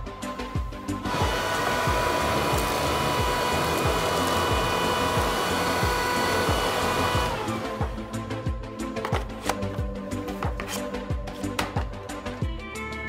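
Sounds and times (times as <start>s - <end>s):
background music with steady beat: 0.0s - 13.0s
handheld vacuum running: 0.9s - 8.2s.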